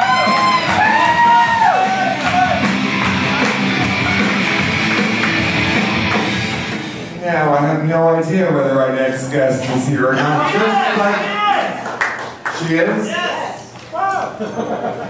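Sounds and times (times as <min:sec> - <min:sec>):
instrumental music: 0:00.0 - 0:07.0.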